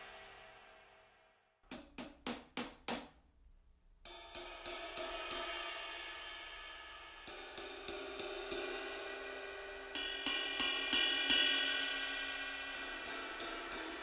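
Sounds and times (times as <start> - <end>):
cymbal and hi-hat strokes: 4.0 - 14.0.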